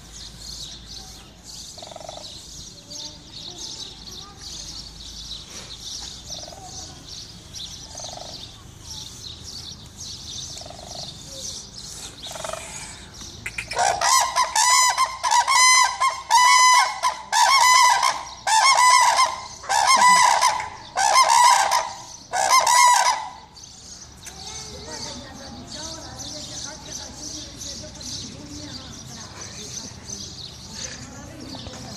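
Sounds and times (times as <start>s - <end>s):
crane calling: 1.7s - 2.7s, 12.2s - 23.8s.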